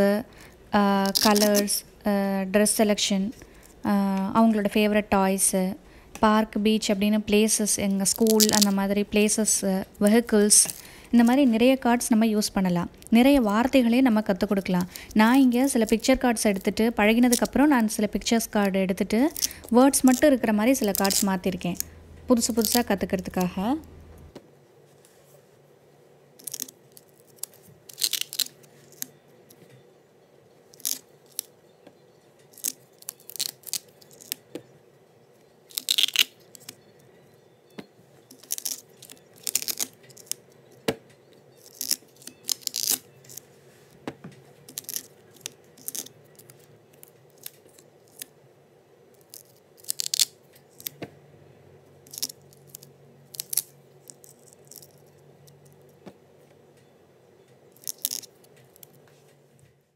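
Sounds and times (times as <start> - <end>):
velcro ripping: 1.0 - 1.7, 8.1 - 8.8, 26.4 - 29.1, 32.5 - 34.4, 35.7 - 36.8, 38.3 - 40.4, 41.6 - 43.4, 44.7 - 48.3, 49.2 - 51.0, 52.0 - 55.0, 57.8 - 59.0.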